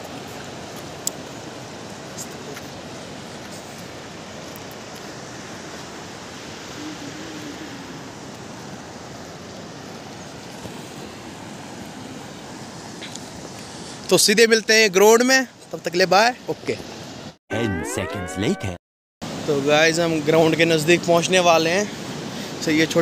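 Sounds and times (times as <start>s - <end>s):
river rushing over stones: 19.2s - 23.0s.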